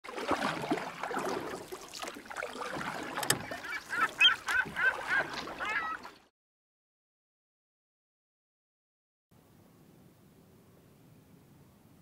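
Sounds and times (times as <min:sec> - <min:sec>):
geese honking: 0:03.4 - 0:06.1.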